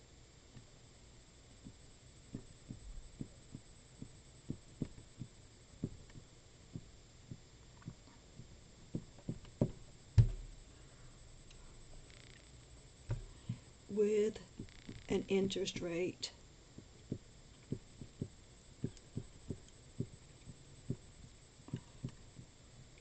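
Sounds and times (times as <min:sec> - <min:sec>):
louder bump: 0:10.2 - 0:10.5.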